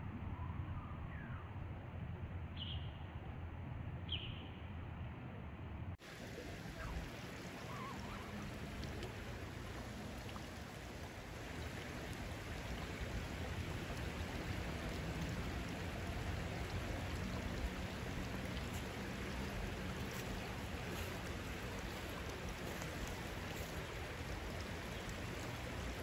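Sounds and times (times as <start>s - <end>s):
creek water running over rocks: 6.0s - 26.0s.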